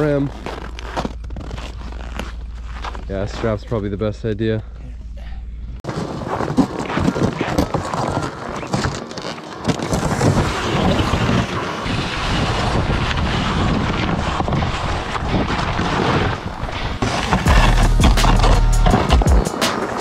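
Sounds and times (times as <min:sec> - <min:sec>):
low rumble: 0:00.0 - 0:05.8, 0:17.5 - 0:19.2
sled scraping over snow: 0:05.8 - 0:20.0
wind buffeting microphone: 0:09.9 - 0:17.5.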